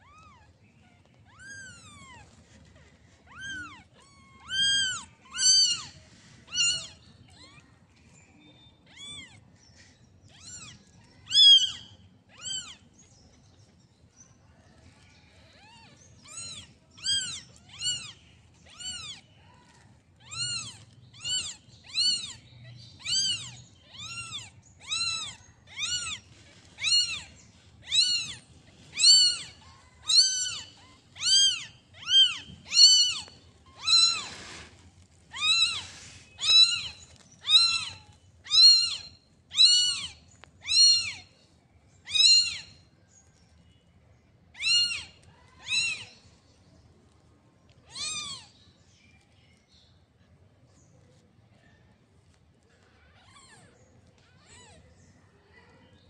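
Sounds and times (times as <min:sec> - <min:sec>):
kittens mewing: 0:00.0 - 0:07.9, 0:10.3 - 0:12.9, 0:15.5 - 0:41.3, 0:42.1 - 0:42.7, 0:44.6 - 0:46.2, 0:47.8 - 0:48.5, 0:52.8 - 0:54.9.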